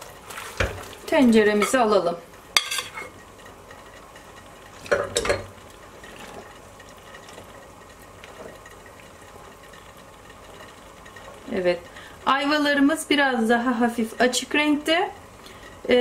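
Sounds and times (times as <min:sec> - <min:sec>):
syrup bubbling in a pot: 0:00.0 - 0:01.5, 0:03.2 - 0:13.1.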